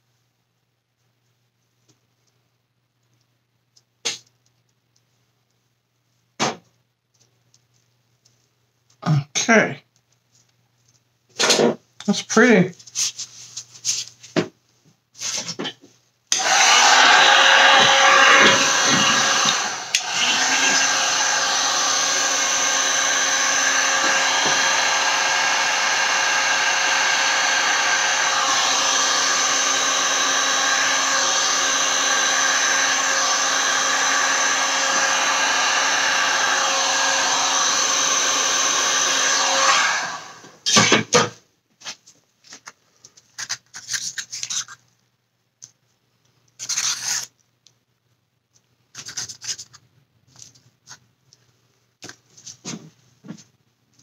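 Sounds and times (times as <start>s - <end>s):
heat gun blowing hiss: 16.3s - 40.5s.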